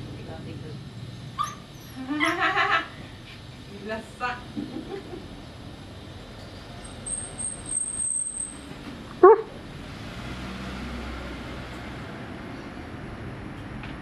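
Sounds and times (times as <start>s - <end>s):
dog yipping: 1.4s - 2.4s, 9.2s - 9.5s.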